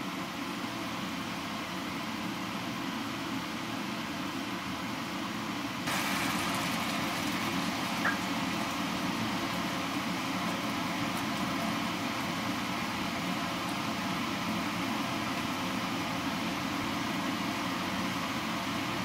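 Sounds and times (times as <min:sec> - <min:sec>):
fan-like hum: 0:00.0 - 0:19.0
chicken sizzling in a pan: 0:05.9 - 0:18.6.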